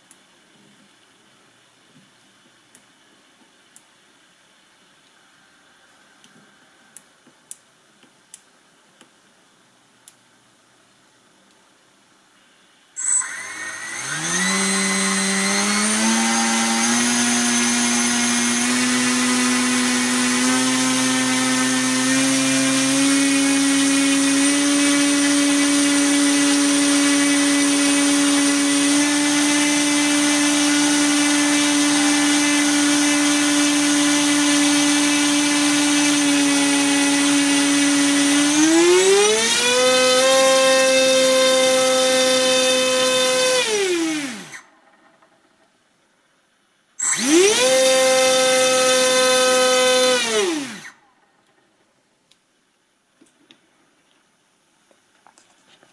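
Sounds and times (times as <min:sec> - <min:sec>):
electric motor propeller whine: 0:13.0 - 0:23.1, 0:24.2 - 0:44.6, 0:47.0 - 0:50.9.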